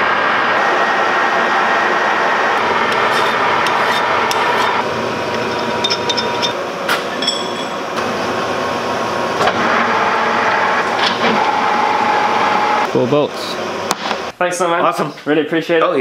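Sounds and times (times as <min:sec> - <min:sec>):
metal lathe whirring: 0:00.0 - 0:14.3
sharp metallic clink: 0:07.2 - 0:07.8.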